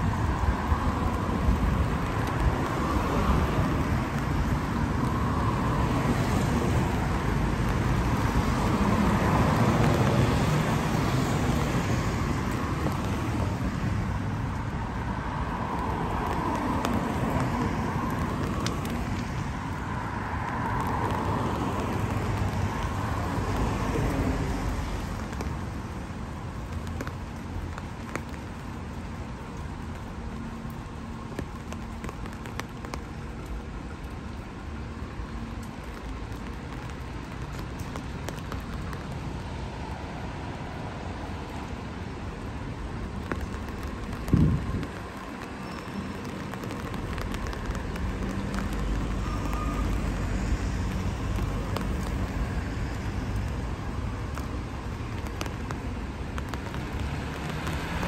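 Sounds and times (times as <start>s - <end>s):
rain: 0.0s - 58.0s
tyre hiss on wet road: 0.0s - 58.0s
passing car engines: 39.2s - 58.0s.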